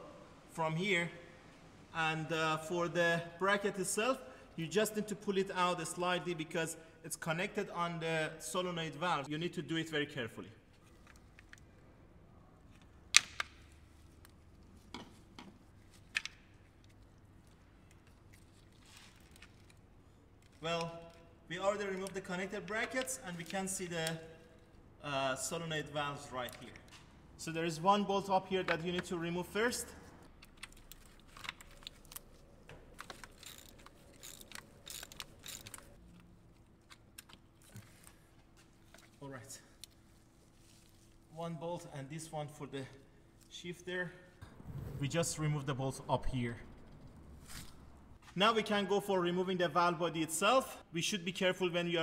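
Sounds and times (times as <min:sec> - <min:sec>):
ratchet clicking: 0:33.0 - 0:36.0.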